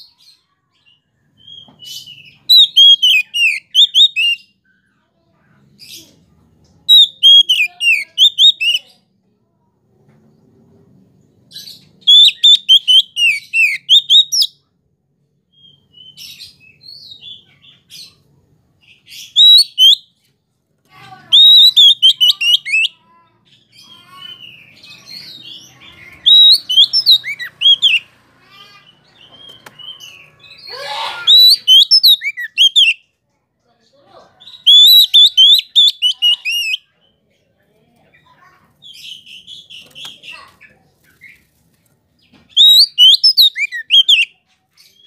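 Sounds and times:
bird singing whistled phrases: 1.4 - 4.5, 6.9 - 8.8, 12.0 - 14.6, 19.2 - 20.1, 21.3 - 22.9, 24.4 - 28.1, 29.4 - 33.0, 34.5 - 36.9, 42.5 - 44.3.

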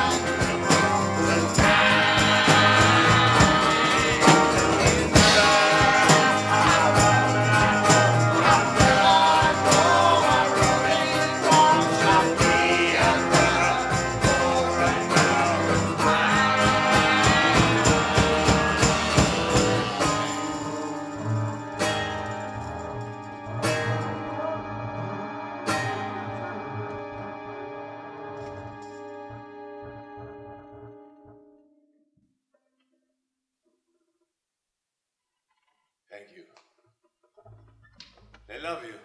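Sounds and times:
man singing ballad: 0.0 - 20.7
acoustic guitar: 0.0 - 31.8.

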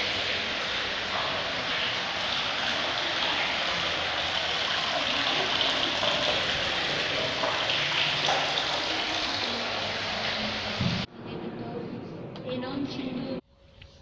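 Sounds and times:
water splashing into trough: 0.0 - 11.1.

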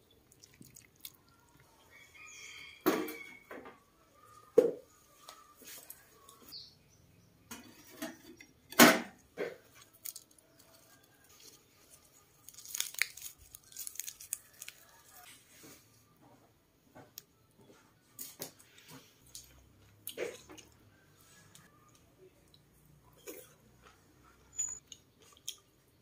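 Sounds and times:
lettuce leaves rustling: 9.6 - 15.2.

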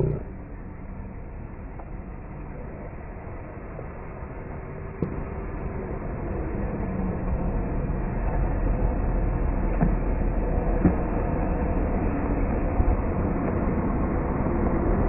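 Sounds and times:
car engine rumbling: 0.0 - 0.6.

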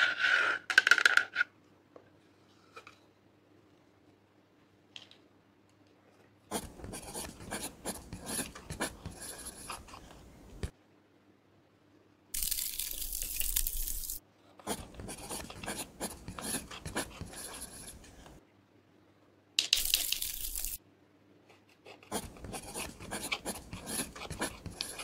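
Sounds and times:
eyeshadow scratching and crunching: 12.4 - 18.1, 19.8 - 20.8, 22.1 - 25.0.

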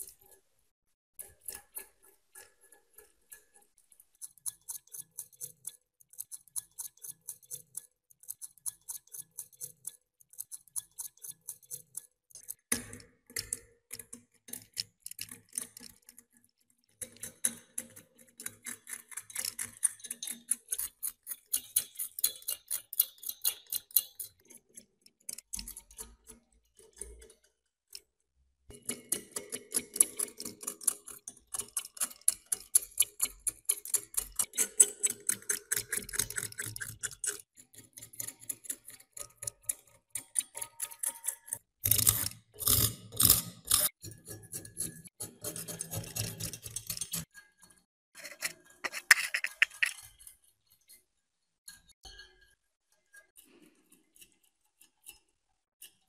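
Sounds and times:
metal scraper scratching rust: 41.9 - 47.4, 48.2 - 50.1.

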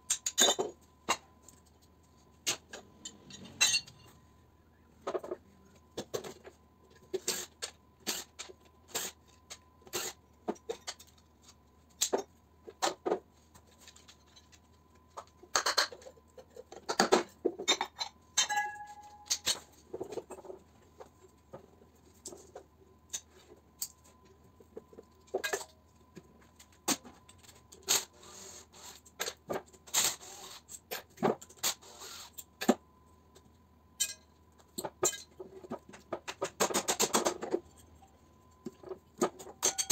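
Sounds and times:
metal parts knocking and clinking: 2.5 - 4.1, 39.3 - 39.9
metal piece ringing: 3.0 - 4.2, 18.4 - 19.5.

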